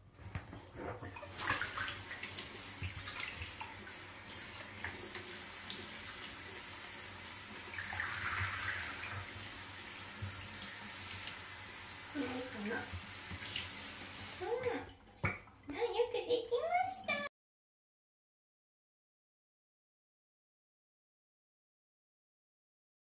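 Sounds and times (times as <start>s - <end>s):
water splashing in plastic basin: 0.2s - 6.4s, 7.6s - 9.5s, 12.1s - 15.9s.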